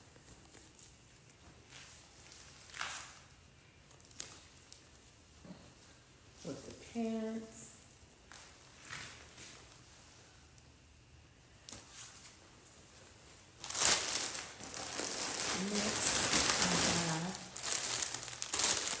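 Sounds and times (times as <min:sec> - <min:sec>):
plastic bag crinkling: 0:13.5 - 0:19.0.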